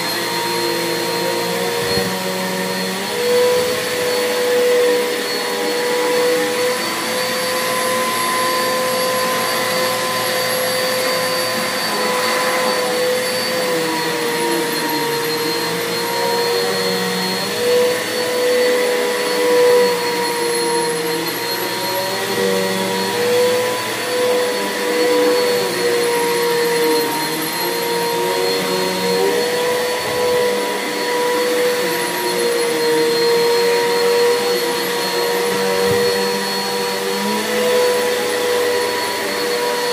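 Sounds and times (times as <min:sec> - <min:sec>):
vacuum cleaner on carpet: 0:00.0 - 0:39.9.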